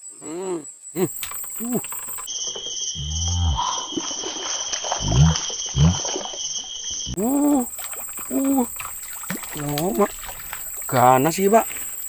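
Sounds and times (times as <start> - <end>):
insects shrilling: 0.0 - 12.0
short low arched calls: 5.0 - 6.2.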